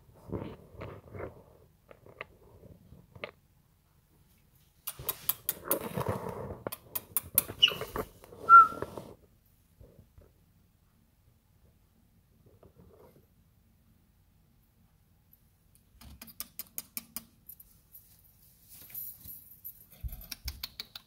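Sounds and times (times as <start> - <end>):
parrot clicking and scratching: 4.9 - 8.1, 20.0 - 21.0
parrot whistling: 8.5 - 8.9.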